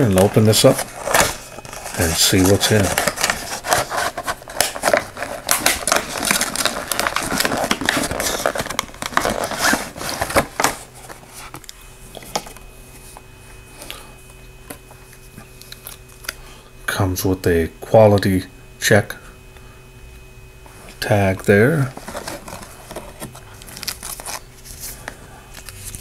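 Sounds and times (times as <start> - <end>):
plastic and cardboard rustling: 0.0 - 13.2, 21.8 - 26.0.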